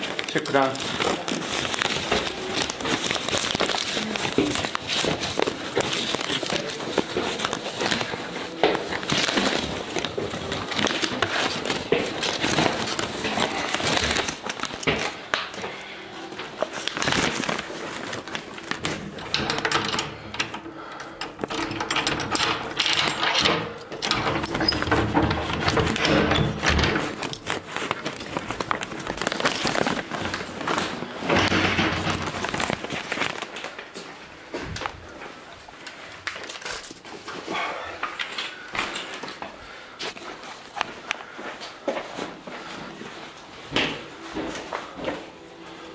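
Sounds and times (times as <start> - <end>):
footsteps: 0.0 - 19.3, 24.2 - 37.7, 38.7 - 45.9
clicking rustling handling noise: 16.4 - 33.9
key rattling in lock: 19.2 - 30.0.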